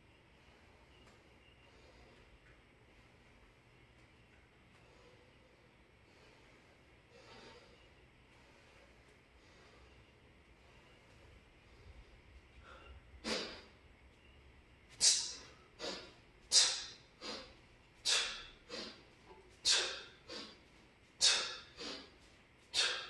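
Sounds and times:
man breathing forcefully: 4.7s - 13.8s, 15.0s - 23.0s.

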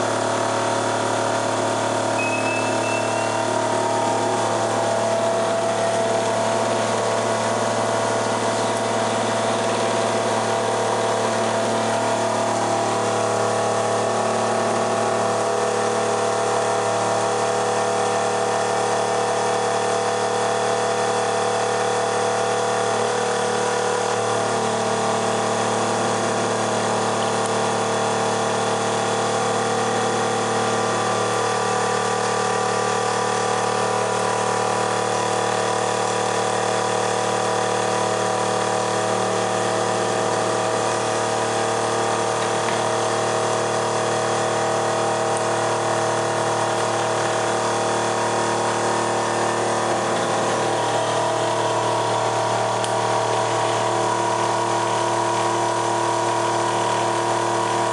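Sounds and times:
electric motor humming: 1.9s - 19.5s.

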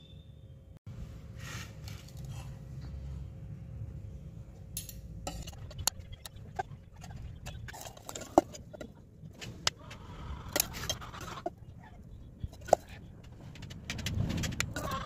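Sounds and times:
low background rumble: 2.2s - 15.0s
metal spoon scraping steel bowl: 5.3s - 9.0s.

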